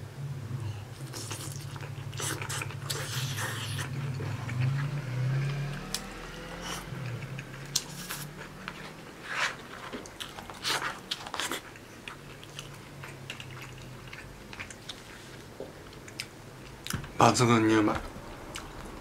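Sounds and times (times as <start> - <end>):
man chewing food: 0.7 - 17.1.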